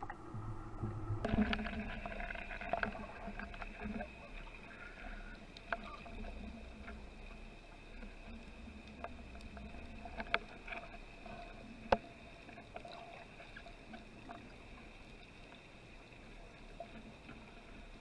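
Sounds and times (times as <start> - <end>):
underwater hiss and hum: 0.0 - 18.0.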